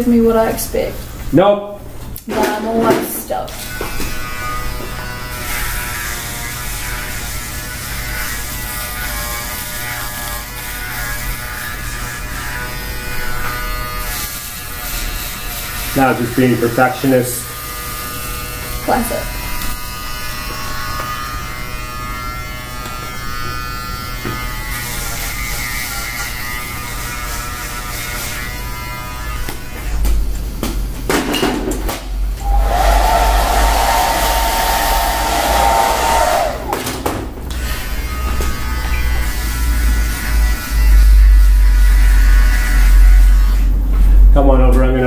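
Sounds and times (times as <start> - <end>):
electric hair clipper buzzing: 3.5 - 30.0, 37.5 - 43.7.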